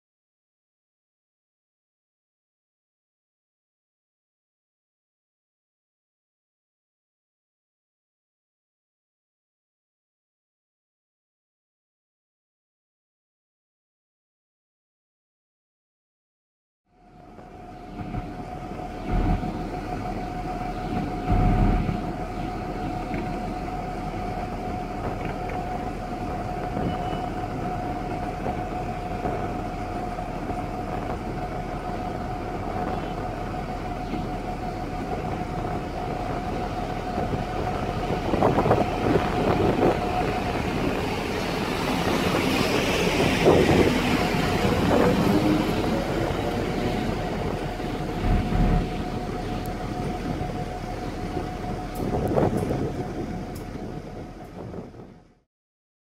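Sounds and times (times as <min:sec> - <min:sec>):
train wheel and rail noise: 0:16.9 - 0:55.4
diesel locomotive idling whine: 0:16.9 - 0:55.5.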